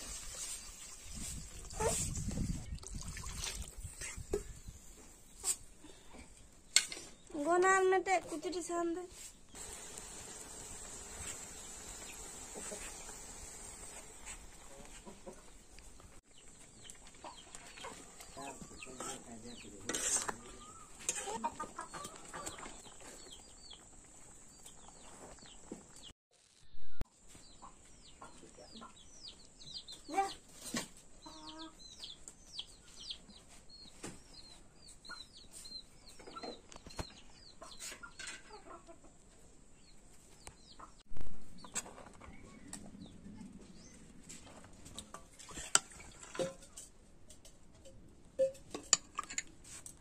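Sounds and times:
chickens clucking: 11.1 - 25.6, 34.9 - 39.4, 40.4 - 41.0
chicks peeping: 14.2 - 23.9
metal spatula scraping pan: 18.9 - 21.5.

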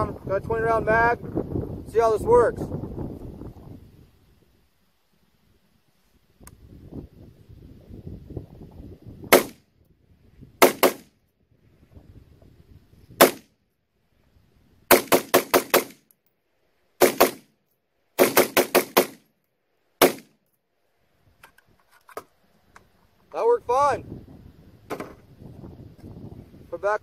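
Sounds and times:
rifle shots: 9.3 - 9.6, 10.6 - 11.1, 13.2 - 13.5, 14.9 - 16.1, 17.0 - 17.5, 18.2 - 19.3, 20.0 - 20.4.

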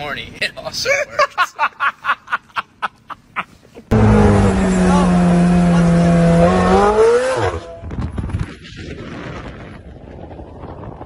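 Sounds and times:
wind and road noise: 2.6 - 11.0
sports car engine accelerating: 3.9 - 7.9.

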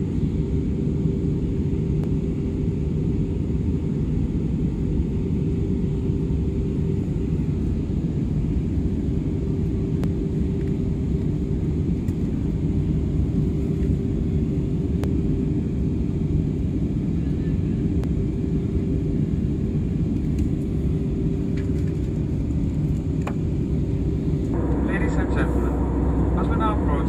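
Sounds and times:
engine and airflow rumble: 0.0 - 27.0
steady cabin hum: 24.3 - 27.0.

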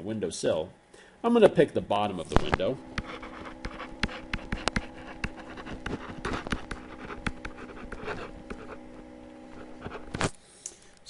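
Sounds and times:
steady hum: 0.0 - 11.0
pen tapping and scratching on screen: 3.0 - 8.8.

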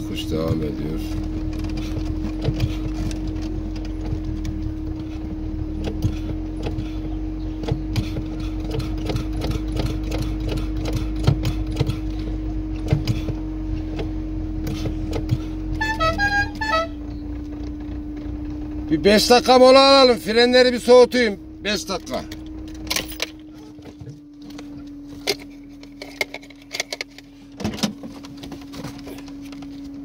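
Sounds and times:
car body rattling and knocking: 0.0 - 15.9, 22.0 - 30.0
car engine drone: 0.0 - 30.0
short squeaks: 14.7 - 18.8.

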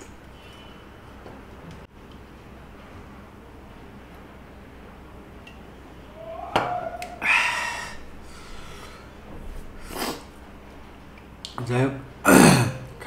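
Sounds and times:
breathy exhale: 7.2 - 9.2.

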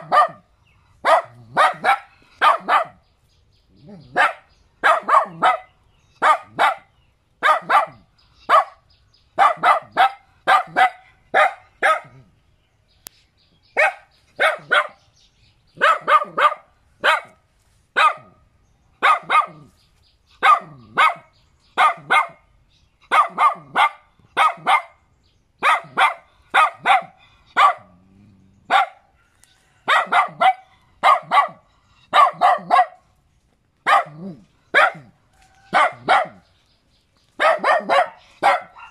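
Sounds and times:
small dog barking sharply: 0.0 - 0.4, 1.0 - 3.0, 4.1 - 8.8, 9.4 - 12.2, 13.8 - 15.0, 15.8 - 17.4, 18.0 - 18.3, 19.0 - 19.7, 20.4 - 22.4, 23.1 - 25.0, 25.6 - 27.9, 29.9 - 33.0, 33.8 - 36.4, 37.4 - 38.9.

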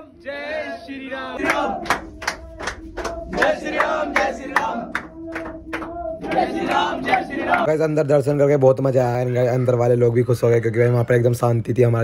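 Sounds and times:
crowd of men chanting: 0.0 - 7.7.

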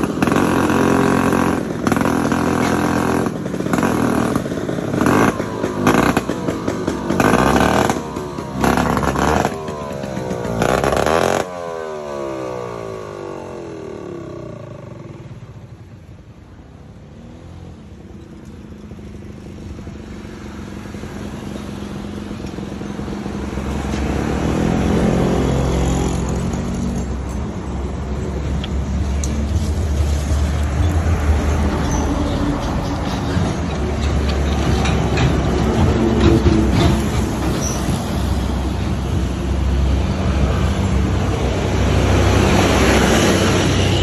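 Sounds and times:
scooter engine running: 0.0 - 17.0.

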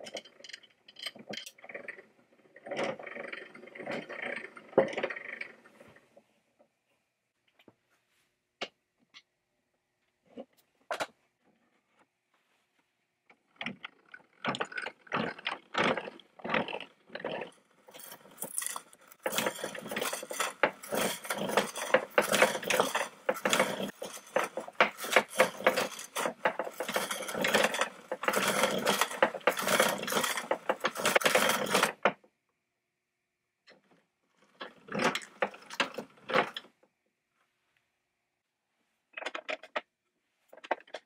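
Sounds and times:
hand drill boring into wood: 14.5 - 32.0.

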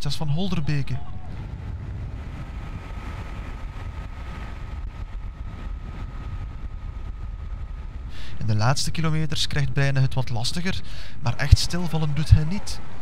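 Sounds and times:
vehicle engine and wind rumble: 0.0 - 13.0.

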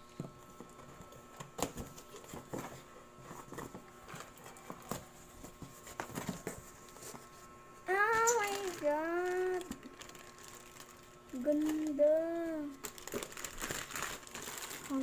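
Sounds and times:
cardboard flaps rustling: 1.5 - 7.4.

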